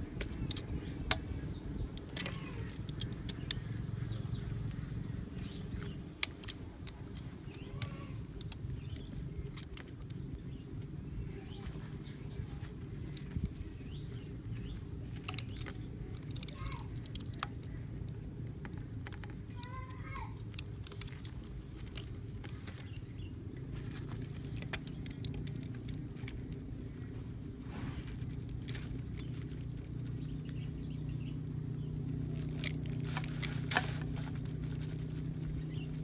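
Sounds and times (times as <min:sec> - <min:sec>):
knife cutting plastic pipe: 0:32.6 - 0:34.4.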